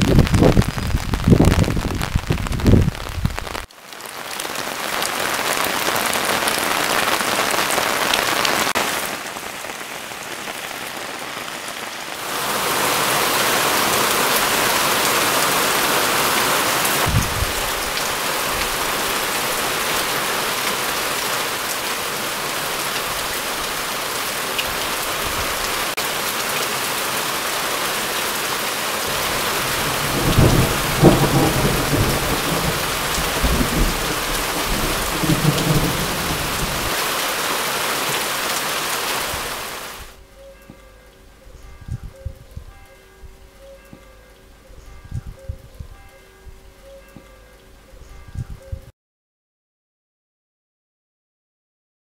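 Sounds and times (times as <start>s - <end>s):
thunder rumble: 0.0s - 3.7s, 17.0s - 18.0s, 29.3s - 37.0s
heavy rain pouring: 0.0s - 40.2s.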